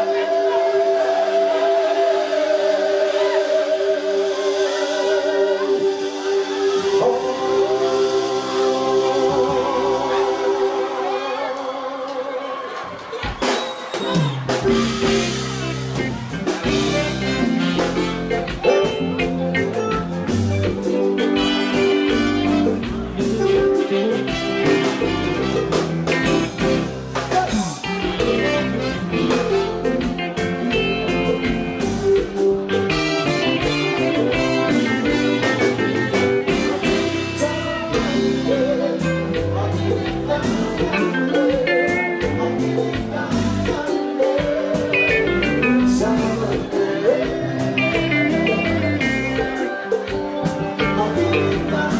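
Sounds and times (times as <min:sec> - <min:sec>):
man singing: 0:00.0 - 0:12.8, 0:14.6 - 0:51.9
live band playing: 0:00.0 - 0:51.9.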